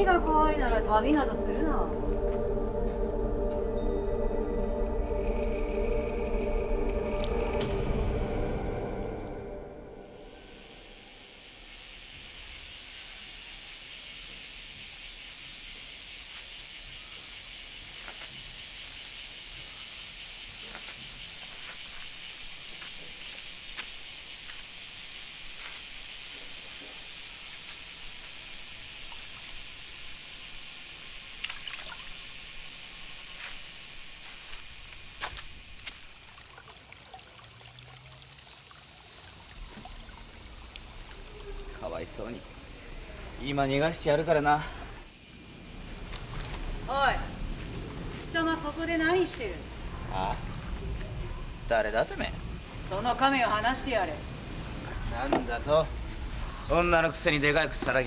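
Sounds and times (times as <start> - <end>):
high-pitched insect chorus: 0.0 - 58.0
water splashing in a basin: 31.3 - 32.5, 35.8 - 41.8.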